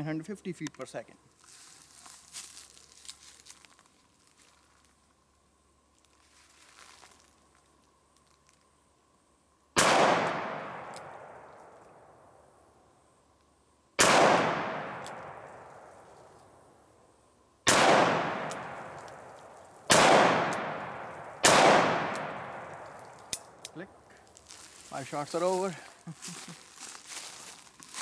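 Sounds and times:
revolver gunshots: 0:09.8 - 0:11.5, 0:14.0 - 0:15.6, 0:17.7 - 0:19.3, 0:19.9 - 0:22.9.

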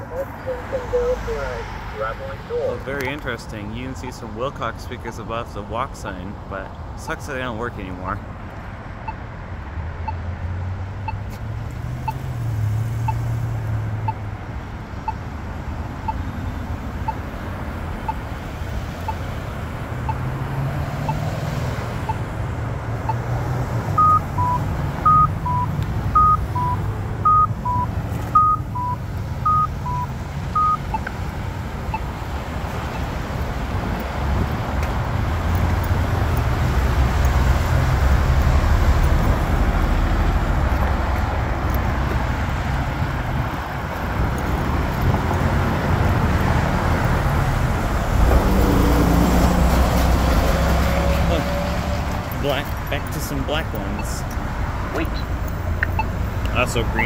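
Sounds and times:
road traffic passing: 0:00.0 - 0:57.0
short electronic beeps: 0:24.0 - 0:31.0, 0:55.9 - 0:57.0
pedestrian push-button ticking: 0:55.0 - 0:56.6.

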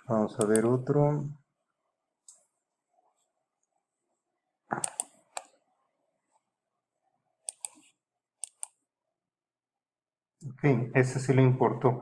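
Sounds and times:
computer mouse clicks: 0:00.4 - 0:00.8, 0:04.7 - 0:05.6, 0:07.4 - 0:08.8.

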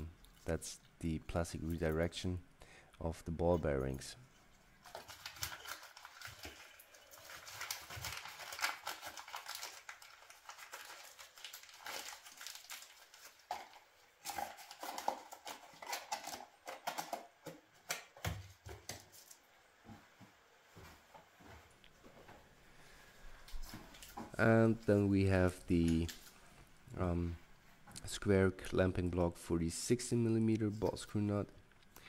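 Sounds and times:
wrapping paper crinkling: 0:04.8 - 0:17.3.

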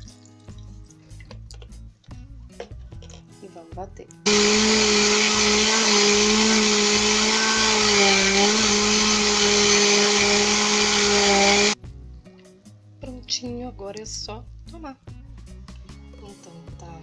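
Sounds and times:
blender motor whirring: 0:04.3 - 0:11.8.

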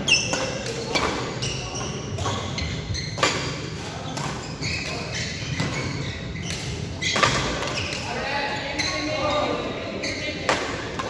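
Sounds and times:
shoes squeaking on court: 0:00.0 - 0:11.0
racket hitting shuttlecock: 0:00.2 - 0:02.5, 0:03.1 - 0:05.0, 0:06.5 - 0:08.0, 0:10.5 - 0:11.0.

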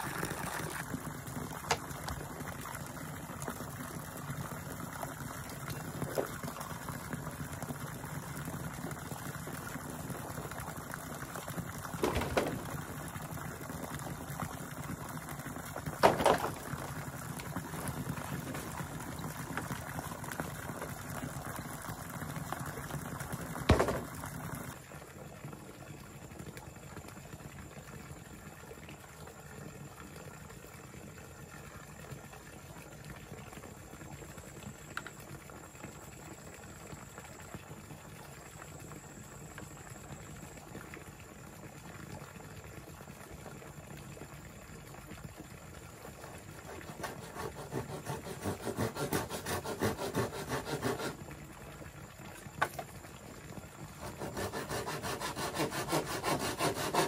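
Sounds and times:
water splashing and bubbling: 0:00.0 - 0:48.6, 0:51.1 - 0:54.7
sharp knocks: 0:12.0 - 0:12.8, 0:16.0 - 0:16.7, 0:23.7 - 0:24.2.

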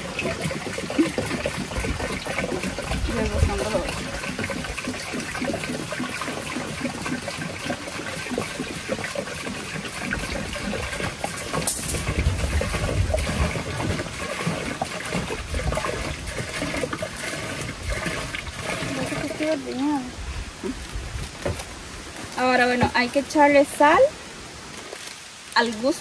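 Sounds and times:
liquid pouring and splashing: 0:00.0 - 0:23.8.

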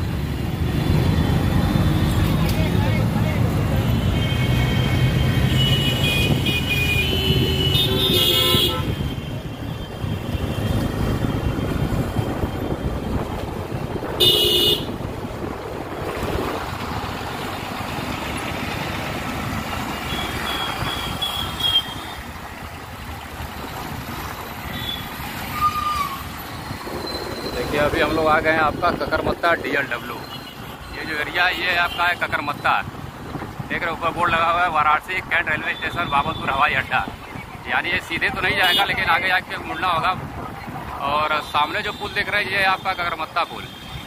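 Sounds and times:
traffic engine and road noise: 0:00.0 - 0:44.0
vehicle horns honking: 0:03.9 - 0:10.0, 0:14.1 - 0:15.0, 0:20.0 - 0:22.2.

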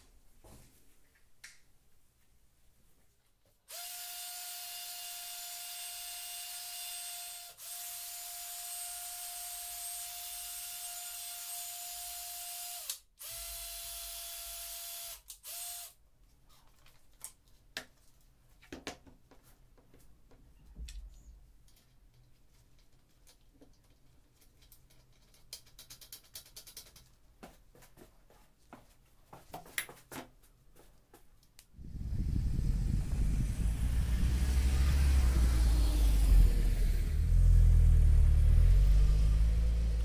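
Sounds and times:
cordless drill whining: 0:03.7 - 0:16.0.

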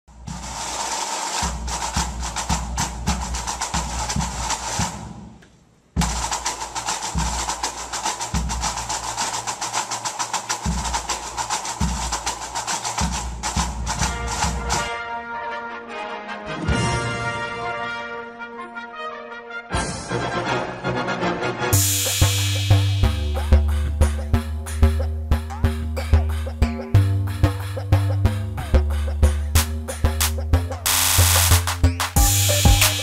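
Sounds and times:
clicking percussion beat: 0:00.2 - 0:14.9, 0:21.8 - 0:33.0
held synth notes: 0:21.8 - 0:33.0
deep bass pulse: 0:22.1 - 0:32.8.

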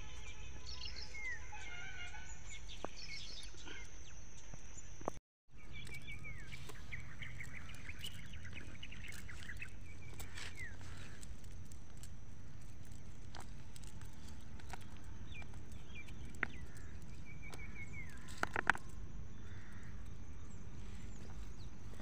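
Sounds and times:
small birds chirping: 0:00.0 - 0:22.0
steady low rumble: 0:05.5 - 0:22.0.

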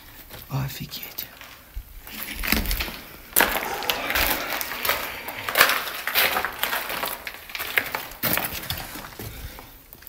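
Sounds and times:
broken wood crunching and cracking: 0:01.4 - 0:09.3.

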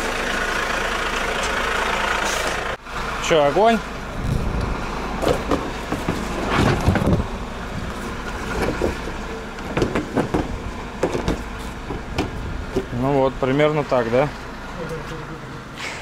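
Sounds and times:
truck engine idling: 0:00.0 - 0:16.0
knocks and clicks of parts: 0:09.6 - 0:12.9.

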